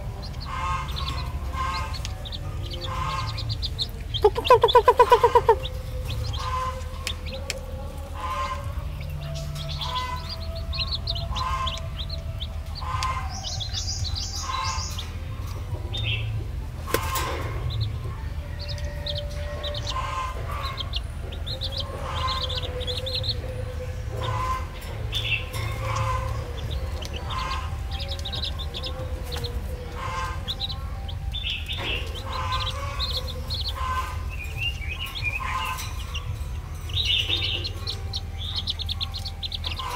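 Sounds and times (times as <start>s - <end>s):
baby chicks peeping: 0.0s - 39.9s
steady low hum: 0.0s - 39.9s.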